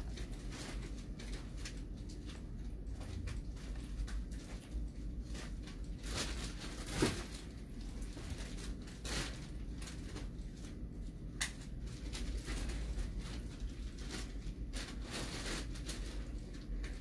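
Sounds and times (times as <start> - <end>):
rustles and knocks: 0.0 - 10.8
low steady hum: 0.0 - 17.0.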